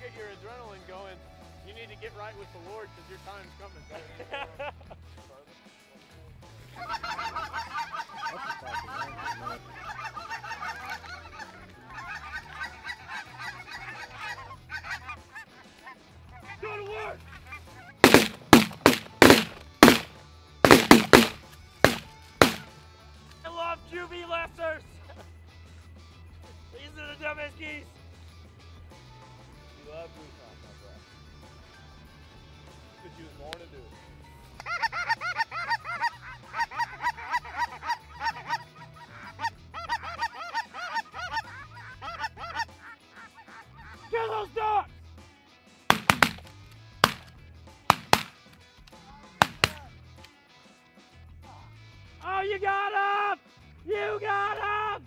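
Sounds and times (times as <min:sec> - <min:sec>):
geese honking: 0:06.8 - 0:15.0
shotgun shots: 0:18.0 - 0:20.1, 0:20.7 - 0:22.7, 0:45.9 - 0:47.3, 0:47.9 - 0:48.4, 0:49.4 - 0:49.8.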